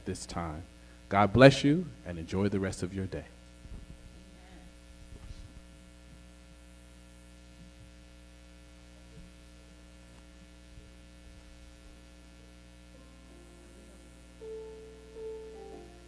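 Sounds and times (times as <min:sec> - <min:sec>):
electrical mains hum: 0:00.0 - 0:16.0
held instrument notes: 0:13.0 - 0:16.0.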